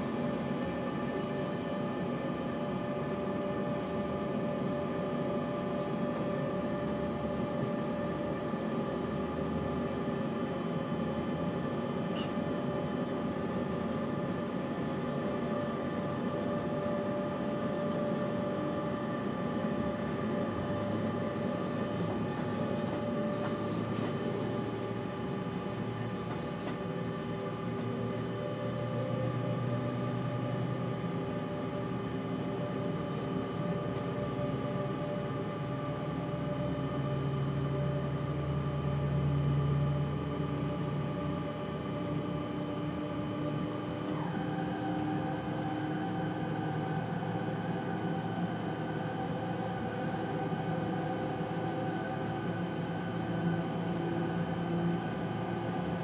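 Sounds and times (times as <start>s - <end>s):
train rumble: 17.3s - 28.4s.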